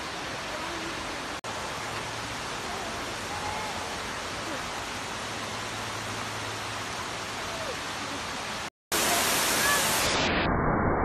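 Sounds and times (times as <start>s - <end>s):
waterfall rushing: 0.0s - 10.3s.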